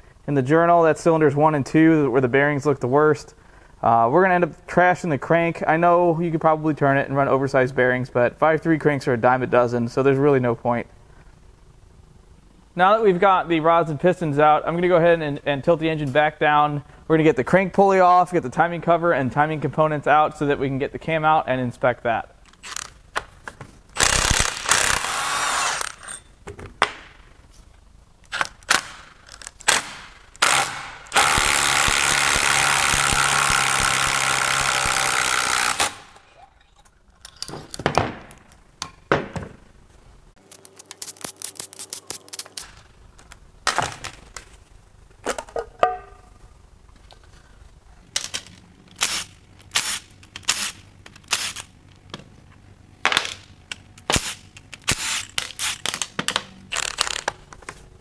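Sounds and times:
impact wrench running: 0:24.0 - 0:26.2, 0:29.7 - 0:36.3.

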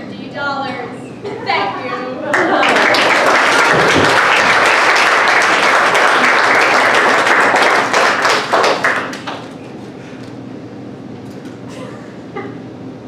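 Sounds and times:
audience applauding: 0:02.3 - 0:09.7.

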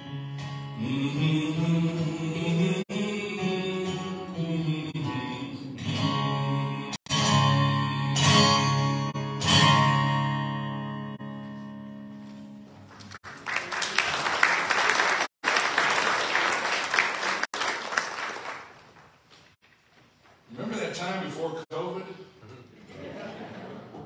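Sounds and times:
acoustic guitar strumming chords: 0:00.0 - 0:12.8
audience applauding: 0:12.8 - 0:19.2.

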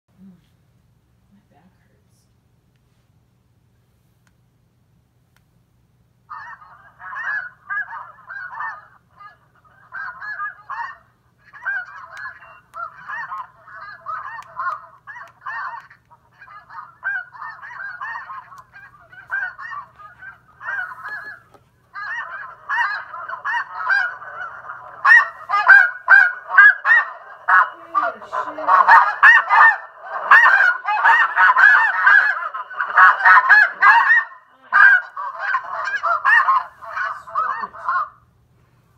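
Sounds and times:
goose honks from electronic caller: 0:22.0 - 0:38.1.

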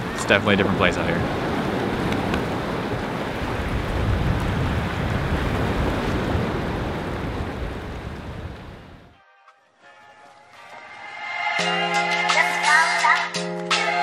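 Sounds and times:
surf washing against rocks: 0:00.0 - 0:09.1
wind rumbling on microphone: 0:00.0 - 0:09.2.

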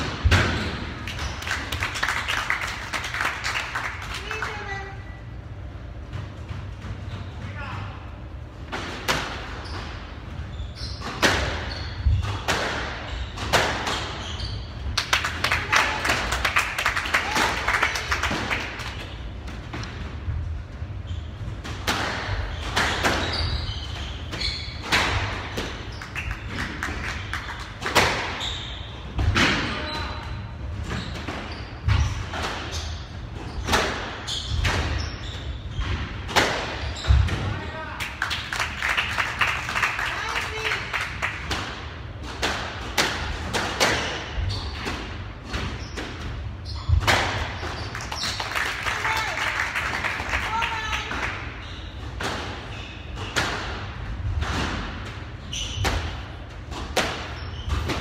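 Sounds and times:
squash ball struck by rackets: 0:36.0 - 0:37.5, 0:41.4 - 0:46.2, 0:46.9 - 0:47.6, 0:53.2 - 0:58.0.

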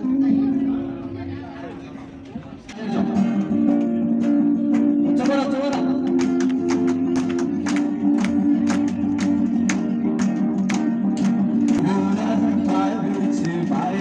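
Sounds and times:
acoustic guitar strumming: 0:00.0 - 0:02.0, 0:02.8 - 0:14.0
man singing: 0:02.7 - 0:06.4, 0:11.7 - 0:14.0.

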